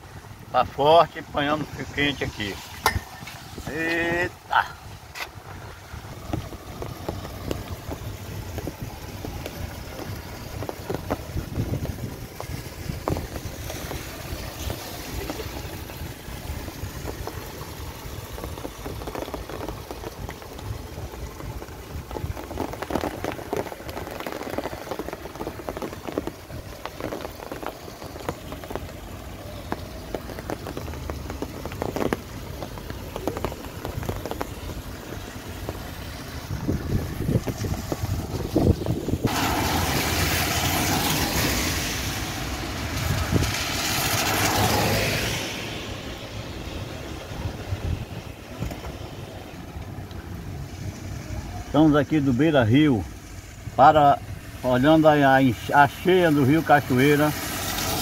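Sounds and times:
wind buffeting microphone: 0.0 - 44.8, 45.4 - 51.7
loud steady hiss: 0.1 - 4.9, 50.5 - 58.0.

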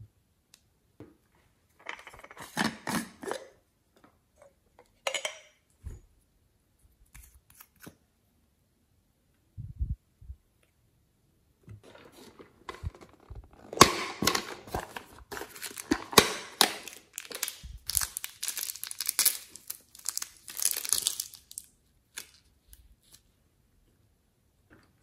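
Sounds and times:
plastic bag crinkling: 11.9 - 23.1.

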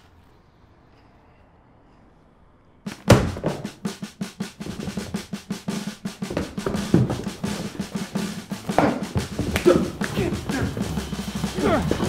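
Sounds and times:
fast drum and percussion beat: 2.9 - 12.0.

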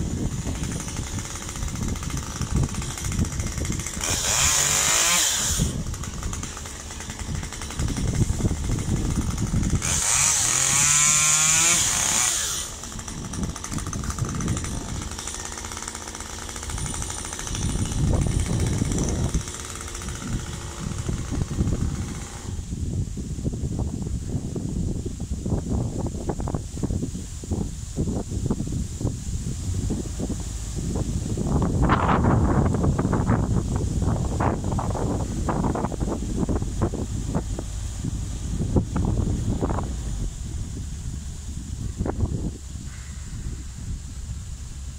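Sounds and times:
chainsaw revving: 0.0 - 22.8
chainsaw idling: 0.0 - 23.0, 28.0 - 44.9.

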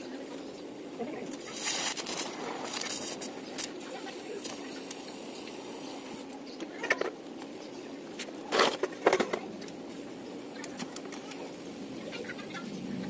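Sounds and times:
welding hiss and hum: 0.0 - 8.5
sharp crackles: 1.2 - 5.1.

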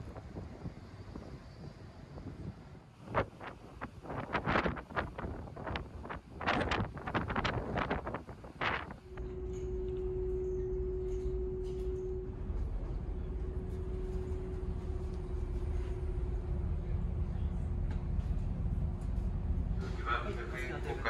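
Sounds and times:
wind gust on microphone: 0.0 - 9.6
constant hum: 0.0 - 21.0
ship engines rumbling: 0.0 - 21.0.

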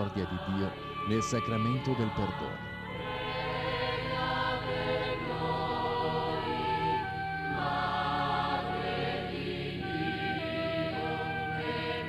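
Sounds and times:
choir singing held chords: 0.0 - 12.0.

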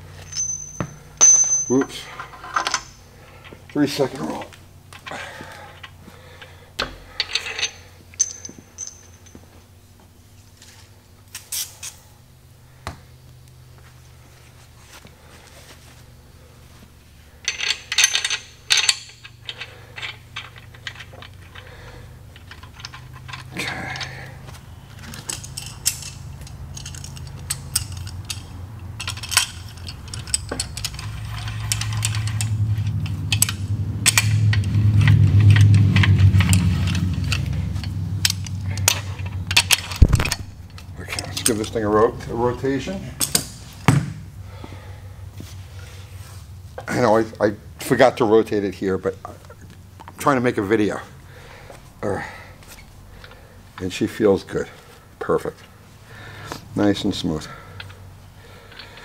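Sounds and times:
metal tools clinking on engine: 0.0 - 9.5, 17.4 - 43.6, 52.2 - 59.0.

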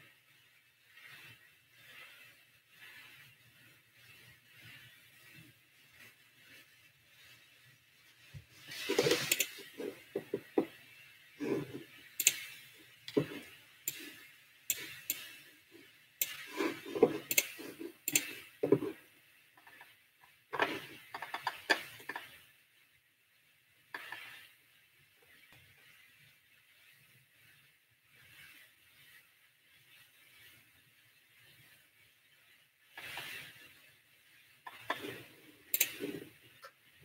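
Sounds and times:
rustling: 0.3 - 19.9
small objects clicking on desk: 8.7 - 10.8, 12.2 - 15.5, 16.2 - 19.0, 20.6 - 22.4, 24.0 - 24.4, 34.7 - 36.3.

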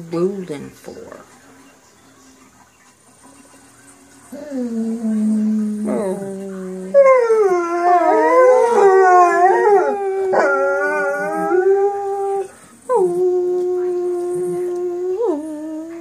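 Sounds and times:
dog howling: 4.3 - 16.0.

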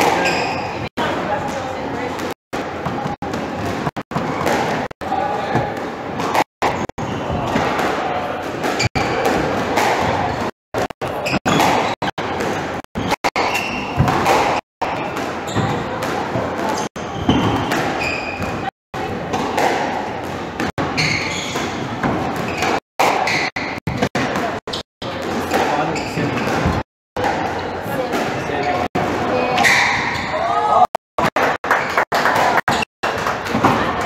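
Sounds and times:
shoes squeaking on wooden floor: 0.0 - 0.9, 16.7 - 18.7, 20.7 - 23.8, 25.7 - 26.9
squash ball smacking: 11.5 - 18.6.

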